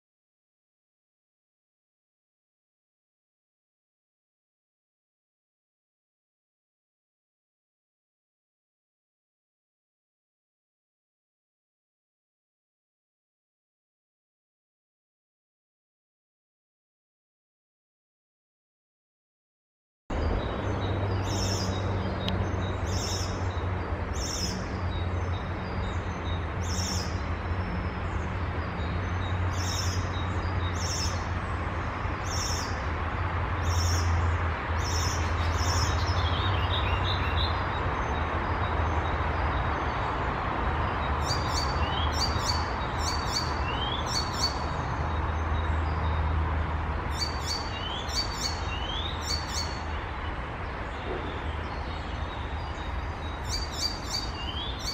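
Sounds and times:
warbler singing: 0:20.1 - 0:54.9.

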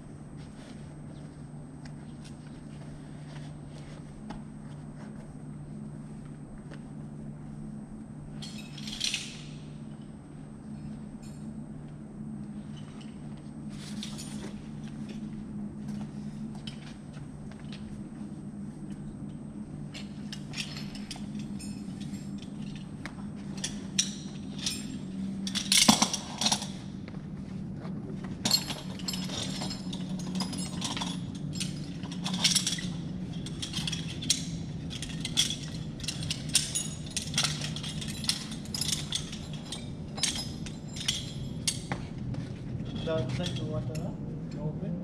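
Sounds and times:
steady low hum: 0:00.0 - 0:45.0
metal carabiners clinking: 0:08.4 - 0:10.1, 0:12.6 - 0:15.3, 0:19.2 - 0:27.0, 0:28.4 - 0:42.2, 0:42.8 - 0:44.1.

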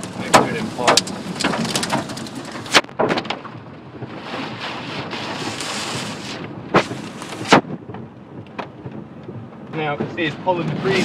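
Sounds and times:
debris banging on car: 0:00.0 - 0:04.2
wind and rain against car: 0:00.0 - 0:11.0.

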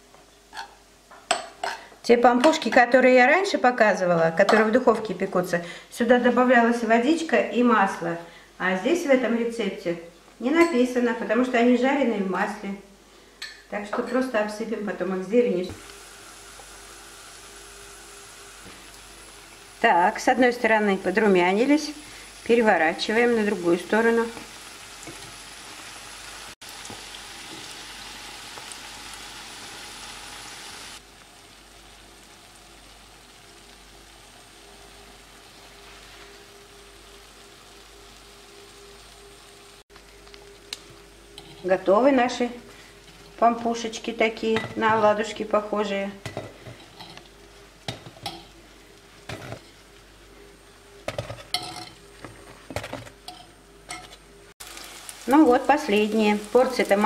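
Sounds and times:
dough sizzling in hot oil: 0:15.6 - 0:52.2, 0:54.4 - 0:57.0.

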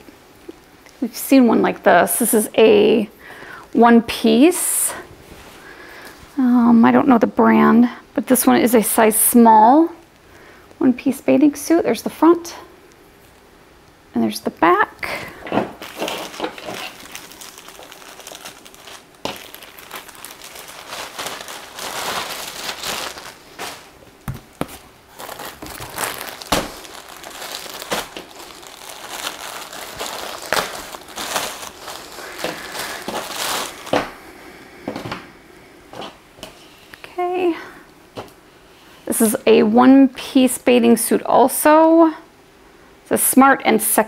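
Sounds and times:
packaging crinkling and rustling: 0:15.1 - 0:34.2.

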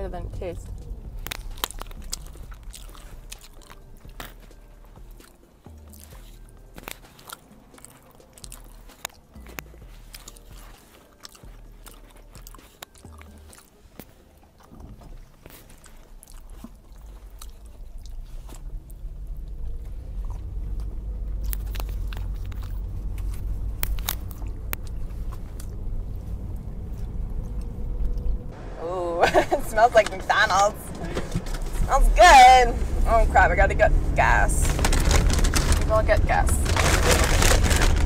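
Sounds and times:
low rumble: 0:00.0 - 0:07.0, 0:14.6 - 0:38.0
person chewing food: 0:00.7 - 0:28.6.

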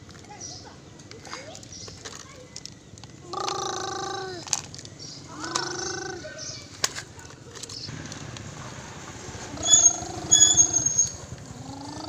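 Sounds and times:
child imitating truck engine: 0:03.2 - 0:04.6, 0:05.3 - 0:06.4, 0:09.5 - 0:12.0.

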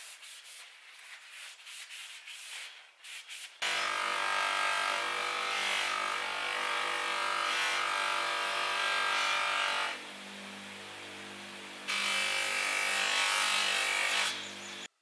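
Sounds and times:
polishing machine motor hum: 0:03.6 - 0:14.9.

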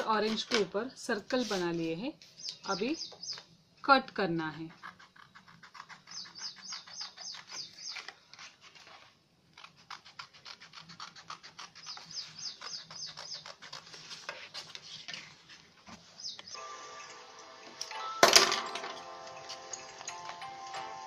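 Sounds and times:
scissors snipping paper: 0:09.6 - 0:15.2.

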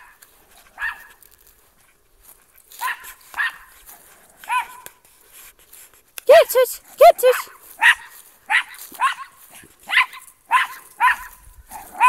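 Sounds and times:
small dog barking: 0:00.8 - 0:01.2, 0:02.8 - 0:03.7, 0:04.4 - 0:04.9, 0:06.3 - 0:12.0.

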